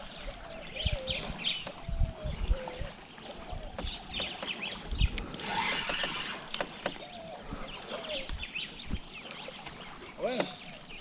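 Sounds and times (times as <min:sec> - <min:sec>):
fishing gear knocks and clicks: 0:03.3 - 0:07.3.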